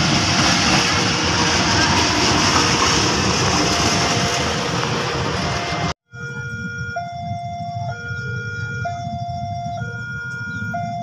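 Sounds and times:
loud rushing noise: 0.0 - 6.0
level crossing alarm tones: 2.7 - 11.0.

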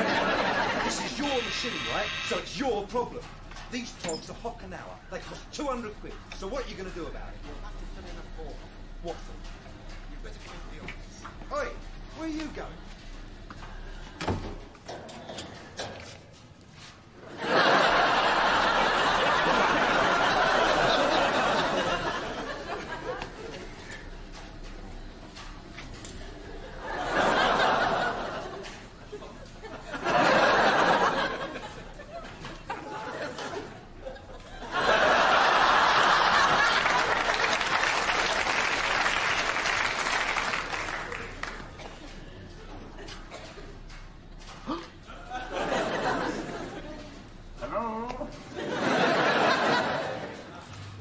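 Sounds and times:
studio audience laughing: 0.0 - 2.4, 17.2 - 24.4, 26.4 - 44.0, 45.0 - 47.4, 48.3 - 51.0
audience applauding: 0.0 - 2.5, 17.4 - 23.3, 34.7 - 42.0.

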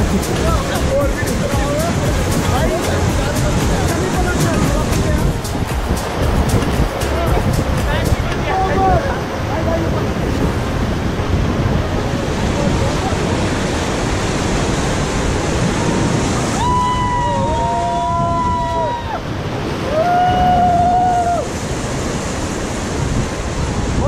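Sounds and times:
whitewater river rushing: 0.0 - 24.0
wind buffeting microphone: 0.0 - 24.0
people shouting: 16.5 - 21.5.

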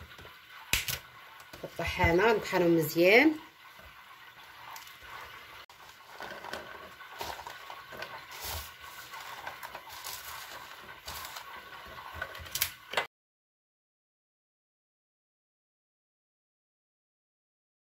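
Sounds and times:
almonds clattering into grinder: 6.1 - 11.7.

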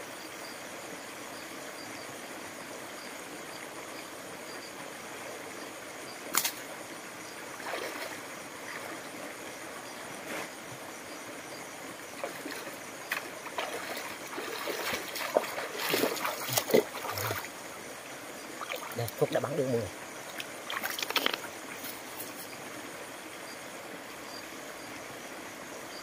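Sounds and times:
stream trickling: 0.0 - 26.0
rustling through brush: 20.6 - 22.5.

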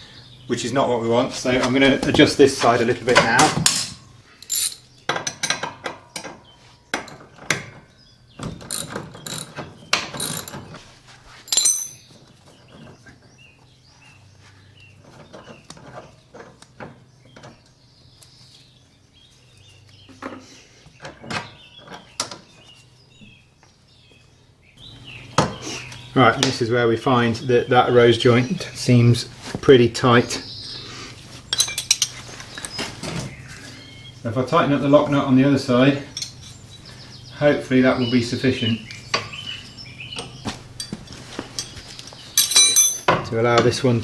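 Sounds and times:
metal tool clinks: 4.4 - 4.8, 11.5 - 12.1, 36.2 - 36.6, 42.4 - 43.2.

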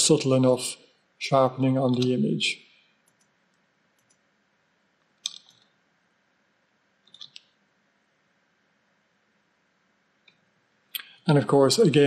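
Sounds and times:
computer mouse clicks: 3.0 - 4.2, 5.0 - 5.8, 7.0 - 7.6.

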